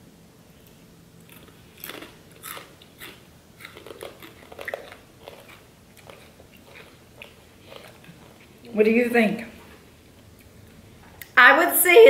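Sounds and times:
people chewing crunchy snacks: 1.2s - 8.6s.

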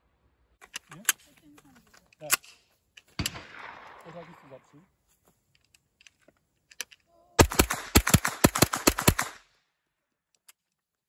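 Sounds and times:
gun handling clicks: 0.6s - 3.6s, 5.5s - 7.1s, 10.3s - 10.8s
rapid gunshots: 7.4s - 9.4s.

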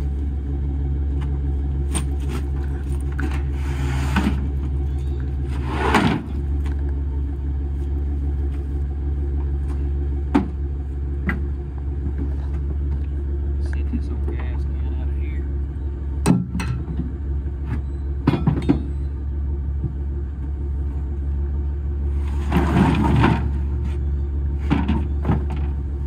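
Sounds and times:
pickup truck engine idling: 0.0s - 22.2s
saw blade scraping across truck bed: 3.2s - 4.5s, 5.5s - 6.4s.

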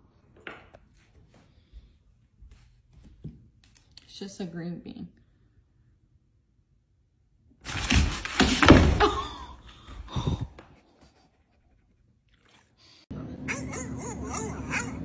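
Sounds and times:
puppy huffing and half-barking: 13.5s - 15.0s.

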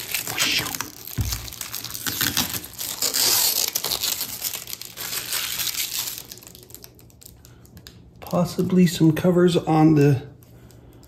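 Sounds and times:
plastic shrink wrap crinkling: 0.0s - 9.1s.

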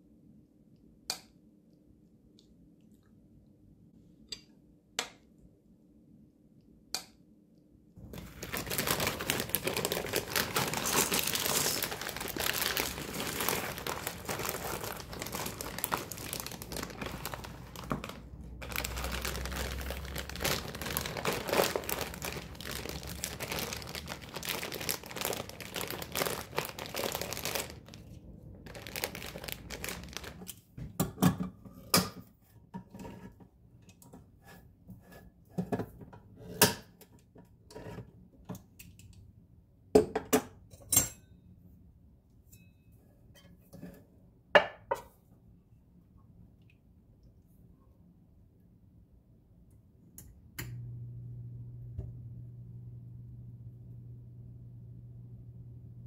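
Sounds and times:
dry pasta pouring into bowl: 8.0s - 28.1s, 28.7s - 30.5s
plastic bag crinkling: 8.0s - 30.5s.

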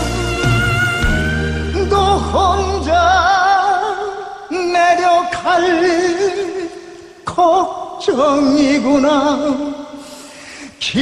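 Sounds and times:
man singing slow ballad: 0.0s - 11.0s.

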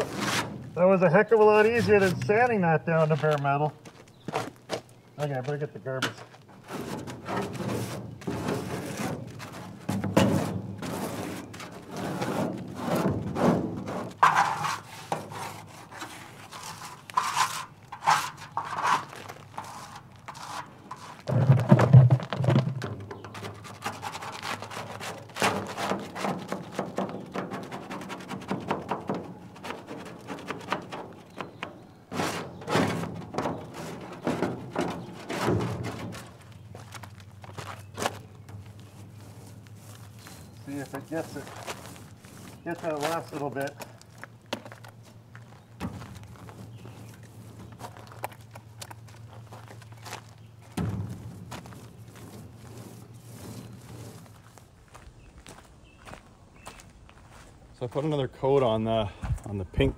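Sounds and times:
paint scraper scraping metal: 0.0s - 2.6s, 6.6s - 21.7s, 23.2s - 36.5s, 38.0s - 43.7s, 50.9s - 54.5s.

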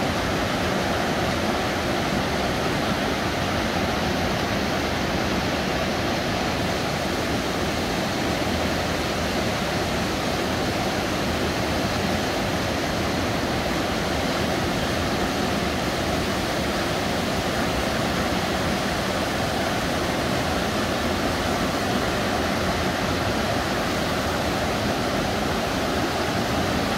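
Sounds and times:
river water rushing over boulders: 0.0s - 26.9s.

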